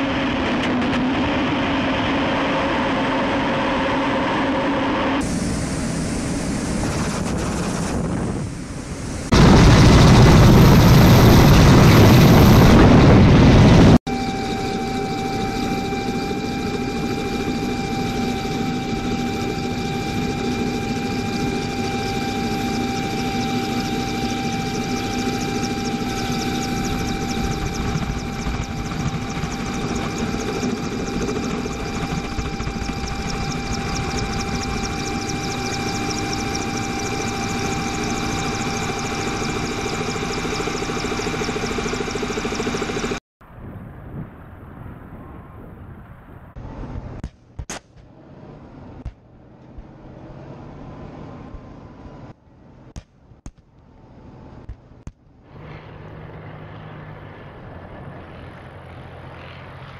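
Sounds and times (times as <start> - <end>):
machine whine with held tones: 0.0 - 43.2
jet aircraft engine: 0.0 - 59.9.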